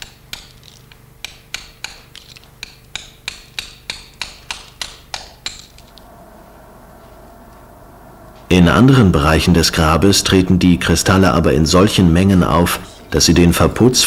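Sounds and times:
hammer tapping chisel on rock: 0:00.0 - 0:05.8.

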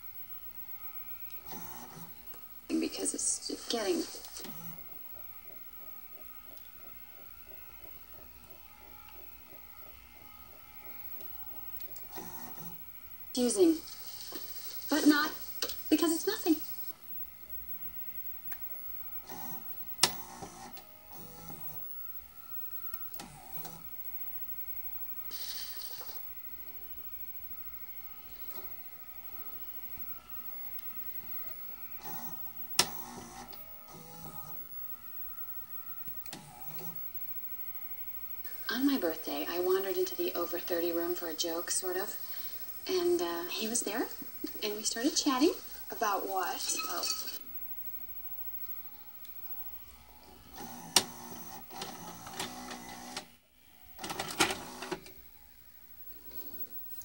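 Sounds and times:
tape mechanism whirring: 0:00.8 - 0:02.4, 0:03.4 - 0:38.1, 0:48.0 - 0:55.2
faint scrambled sound: 0:01.6 - 0:11.9, 0:12.5 - 0:19.1, 0:34.4 - 0:50.5, 0:55.8 - 0:57.0
vcr click: 0:19.3 - 0:21.6, 0:32.0 - 0:34.4, 0:50.5 - 0:53.3, 0:54.0 - 0:55.2.

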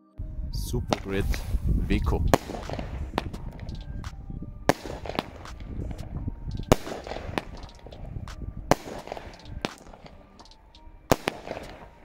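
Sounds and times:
firework bangs: 0:02.1 - 0:04.1, 0:04.7 - 0:10.4, 0:11.1 - 0:12.0
firework crackling: 0:02.2 - 0:04.0, 0:04.7 - 0:06.0, 0:06.6 - 0:08.1, 0:08.7 - 0:12.0.

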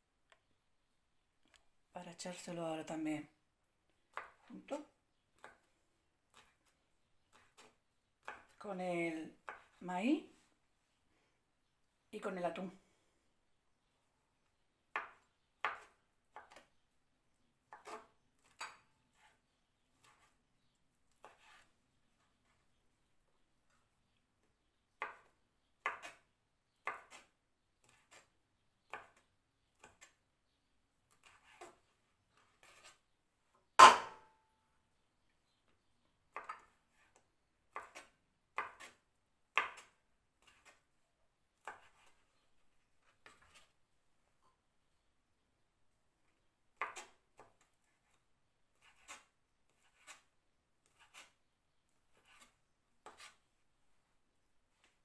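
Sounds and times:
knife chopping on wooden board: 0:14.9 - 0:16.6, 0:25.0 - 0:26.2, 0:33.8 - 0:34.3, 0:37.7 - 0:40.8.

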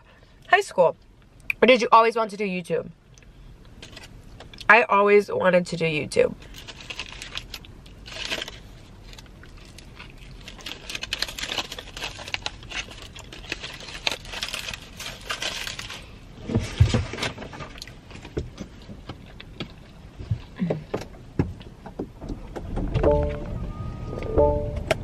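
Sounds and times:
foil wrapper crinkling: 0:06.4 - 0:16.2.

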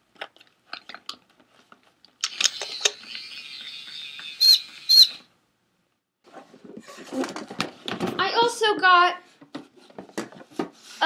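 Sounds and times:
toy clicks: 0:02.2 - 0:03.1
toy electronic chirping: 0:02.4 - 0:05.2.

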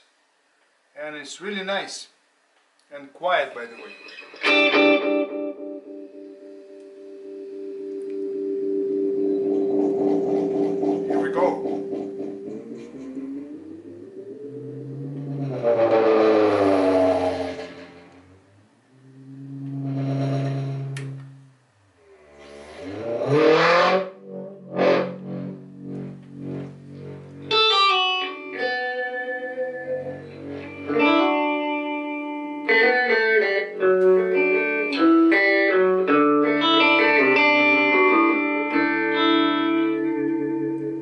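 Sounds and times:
electric guitar through delay: 0:03.9 - 0:16.2, 0:24.0 - 0:41.0
delay effect warbling pitch sweep: 0:07.2 - 0:18.5, 0:23.2 - 0:32.4.

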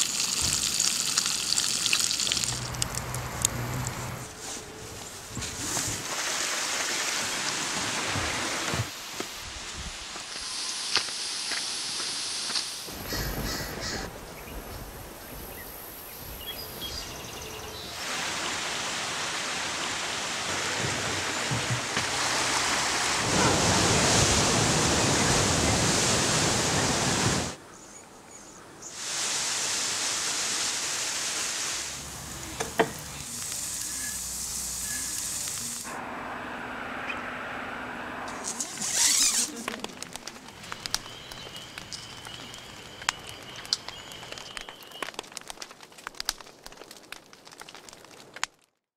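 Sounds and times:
campfire crackles: 0:00.0 - 0:06.2, 0:09.0 - 0:20.4, 0:31.6 - 0:35.9, 0:38.3 - 0:48.9
sea surf breaking on rocks: 0:18.0 - 0:27.6.

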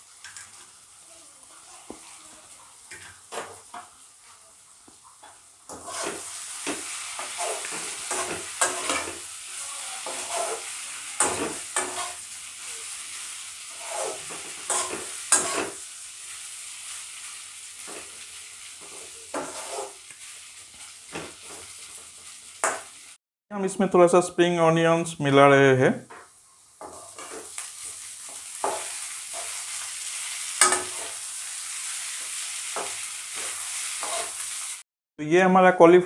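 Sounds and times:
frying sizzle: 0:00.0 - 0:34.9
wooden spatula scraping pan: 0:05.7 - 0:09.2, 0:10.0 - 0:10.7, 0:11.4 - 0:12.2, 0:13.7 - 0:15.8, 0:18.9 - 0:20.0, 0:32.8 - 0:34.4.

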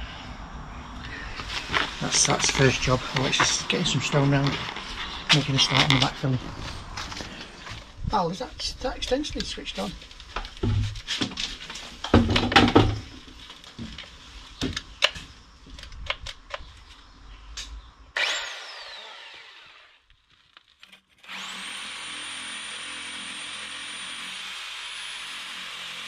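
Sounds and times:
power tool motor bursts: 0:18.2 - 0:20.0, 0:21.2 - 0:26.0
power tool whine: 0:18.2 - 0:20.1, 0:21.2 - 0:26.0.

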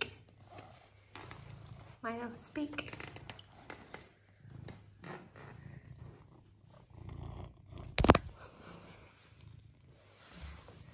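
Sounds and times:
cat purring: 0:00.0 - 0:10.9.

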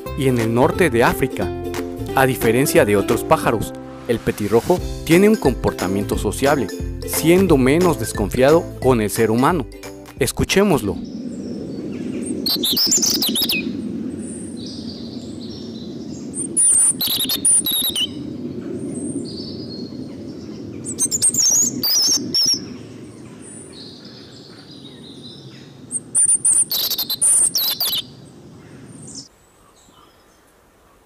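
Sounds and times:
robin singing: 0:00.0 - 0:03.8, 0:04.6 - 0:30.4.

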